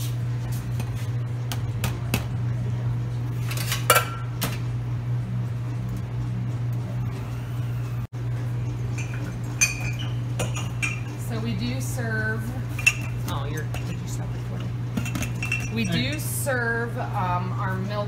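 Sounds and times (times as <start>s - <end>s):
steady low hum: 0.0s - 18.0s
metal cups and utensils clinking: 8.6s - 11.4s, 12.7s - 16.4s.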